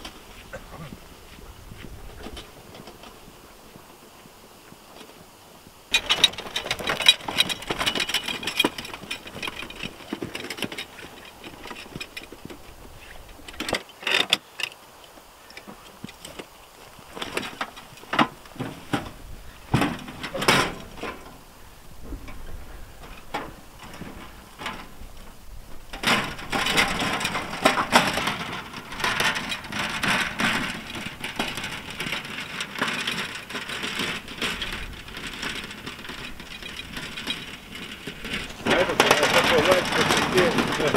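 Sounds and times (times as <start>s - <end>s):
metal wheelbarrow clanking: 1.7s - 3.7s, 5.9s - 14.8s, 15.6s - 40.9s.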